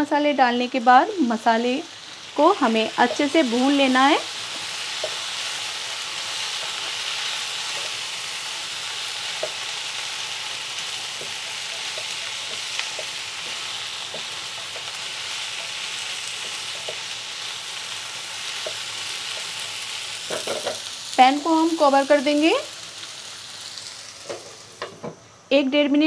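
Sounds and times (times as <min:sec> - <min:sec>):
vegetables sizzling in oil: 0:00.0 - 0:26.0
wooden spatula tapping pan: 0:11.1 - 0:14.9.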